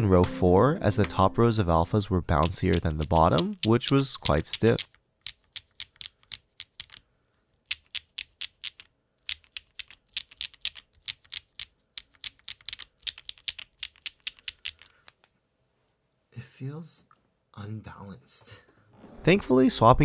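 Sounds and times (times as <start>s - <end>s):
mechanical keyboard typing: 2.3s - 7.0s, 7.7s - 14.9s.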